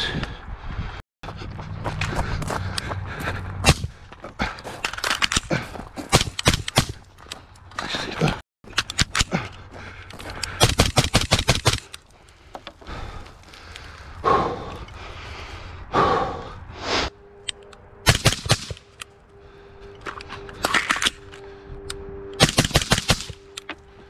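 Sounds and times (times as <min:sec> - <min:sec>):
semi-automatic gunfire: 0:22.4 - 0:23.4.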